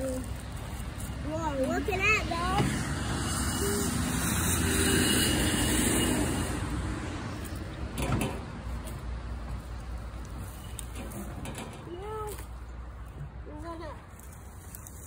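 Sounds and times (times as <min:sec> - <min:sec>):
vehicle driving past: 0:02.4 - 0:08.6.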